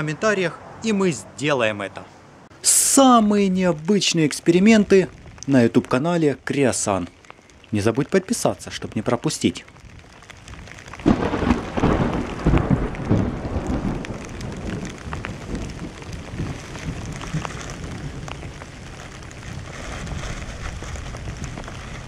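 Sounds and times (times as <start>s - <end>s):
rain falling: 2.4s - 22.0s
raindrops ticking on camera: 2.6s - 22.0s
thunder rumbling: 8.6s - 22.0s.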